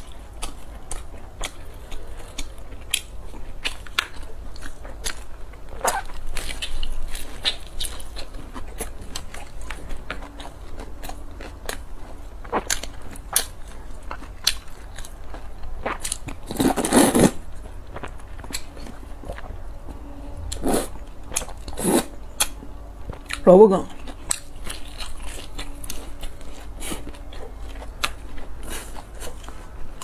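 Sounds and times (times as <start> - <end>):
crunching and chewing: 0.0 - 30.0
slurping noodles: 16.5 - 17.4, 21.8 - 22.1.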